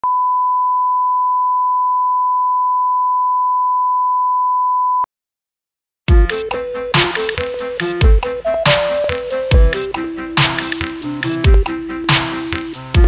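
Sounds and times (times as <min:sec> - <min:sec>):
sine test tone: 0:00.0 - 0:05.1.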